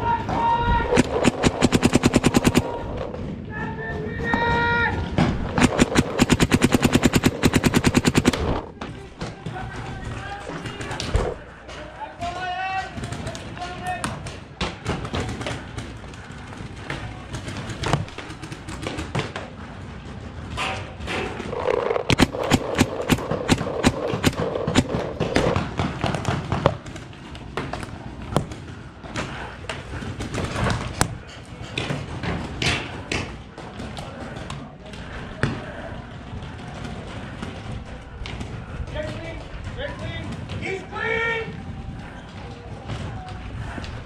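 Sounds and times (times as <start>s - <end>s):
paintball markers firing: 0.9s - 3.0s, 5.5s - 8.7s, 21.5s - 27.0s.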